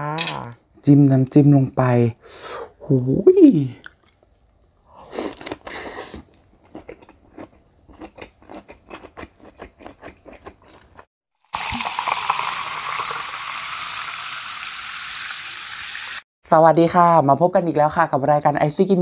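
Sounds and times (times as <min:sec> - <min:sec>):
person biting and chewing: 0:05.1 - 0:11.1.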